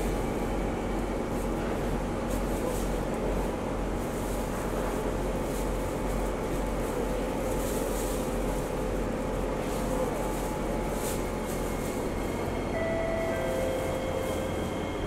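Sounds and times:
air conditioning hum and hiss: 0.0 - 15.0.

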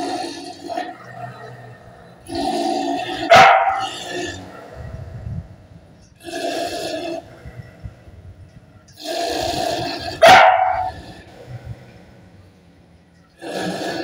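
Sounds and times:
dog barking: 3.3 - 4.0, 10.2 - 11.0.

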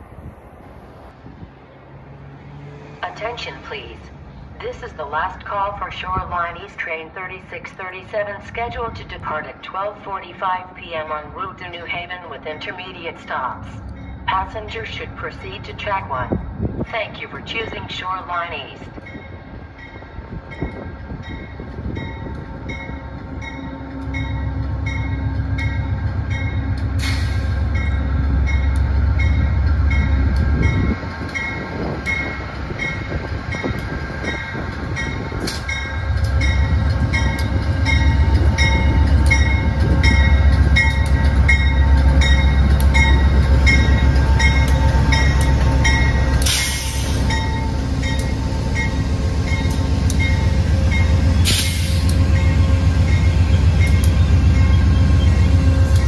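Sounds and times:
diesel locomotive engine rumbling: 0.0 - 56.0
locomotive bell ringing: 18.4 - 26.9, 27.7 - 56.0.

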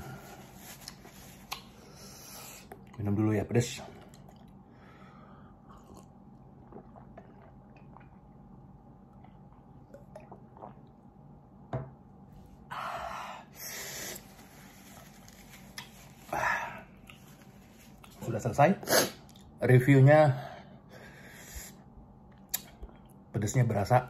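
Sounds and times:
man gulping water: 3.9 - 4.7, 5.6 - 11.2.

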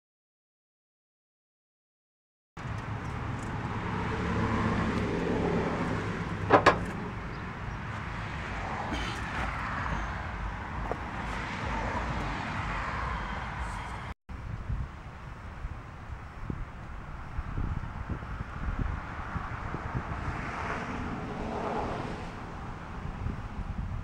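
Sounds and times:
vehicle passing: 2.6 - 14.2, 18.3 - 23.6.

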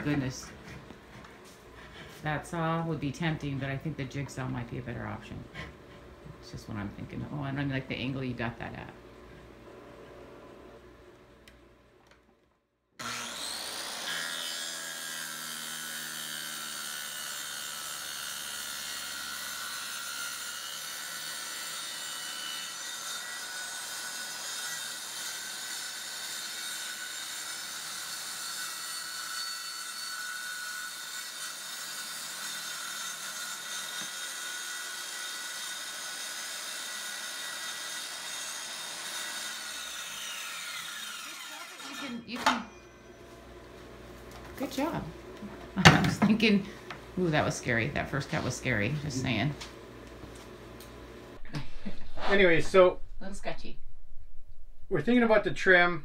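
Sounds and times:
circular saw cutting: 13.0 - 43.5.

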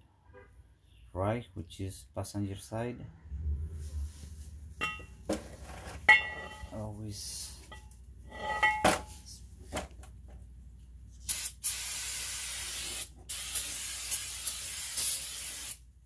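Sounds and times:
aerosol can spraying: 11.2 - 15.8.

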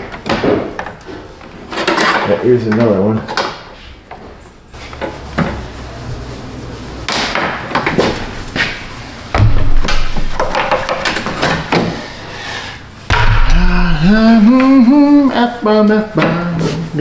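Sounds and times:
heavy thumps: 9.3 - 12.0, 13.1 - 15.2.

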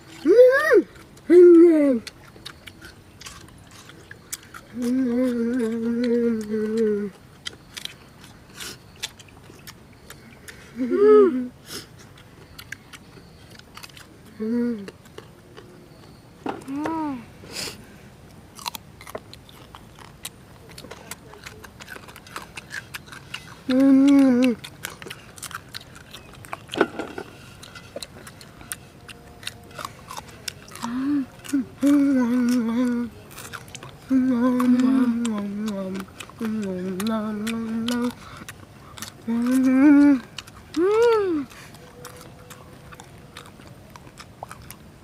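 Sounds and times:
chewing and lip-smacking: 0.0 - 10.8, 11.8 - 17.0, 18.5 - 45.0
child's vocal sound of enjoyment: 0.2 - 2.1, 39.3 - 41.5.

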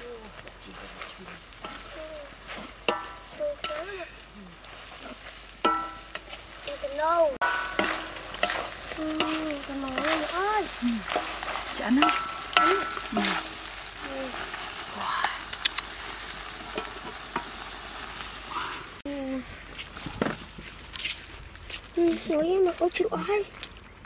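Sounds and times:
food sizzling in a wok: 0.0 - 19.2
spatula scraping a wok: 0.4 - 18.6.

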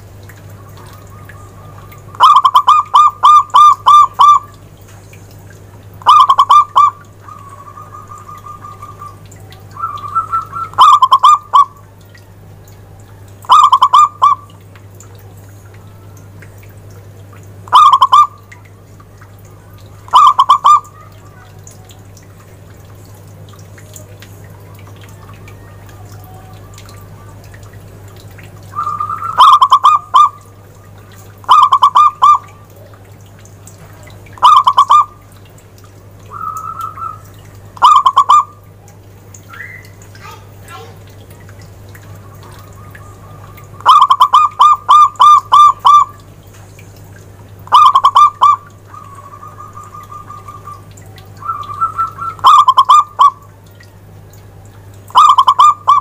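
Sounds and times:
dove cooing: 0.5 - 4.5, 6.0 - 11.8, 13.4 - 14.5, 17.7 - 18.4, 20.0 - 22.0, 28.6 - 32.9, 34.4 - 35.2, 36.3 - 38.6, 42.0 - 46.2, 47.7 - 53.5, 55.1 - 56.0.

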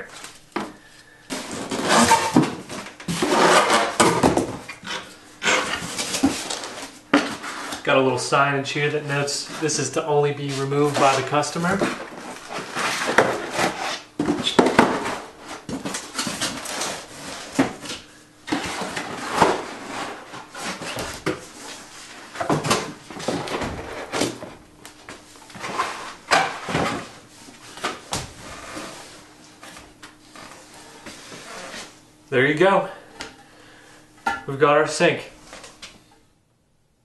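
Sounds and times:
cardboard pieces knocking and thumping: 0.6 - 4.6, 11.0 - 20.0
cardboard scraping and rustling: 1.3 - 7.8, 9.1 - 32.0.

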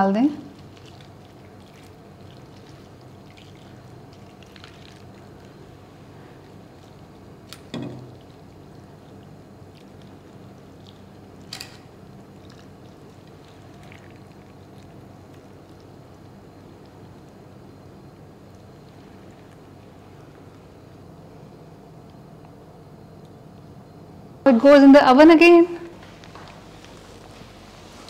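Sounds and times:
liquid being poured: 0.5 - 17.7.

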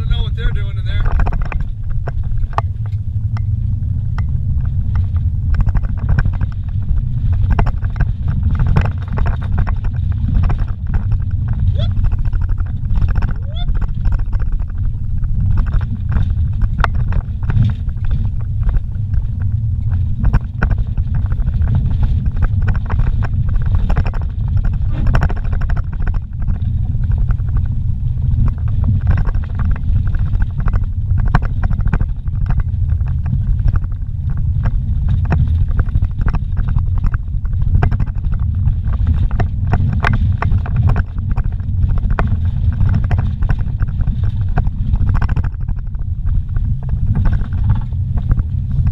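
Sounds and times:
engine and tyres rumbling: 0.0 - 48.9
vehicle knocks and rattles: 0.0 - 48.9.

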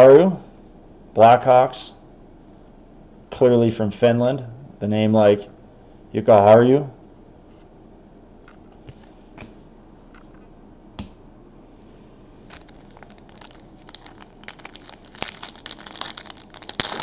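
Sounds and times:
foil wrapper crinkling: 12.4 - 17.0.

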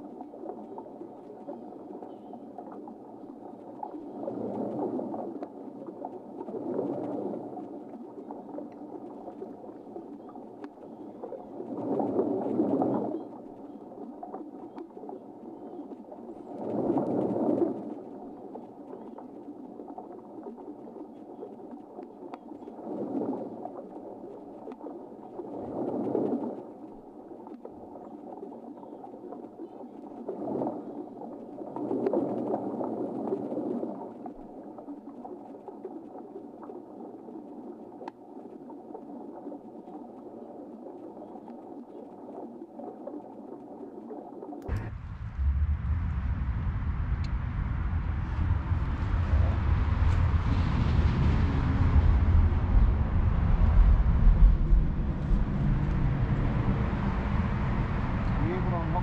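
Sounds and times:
underwater drone thrusters humming: 52.0 - 59.0.

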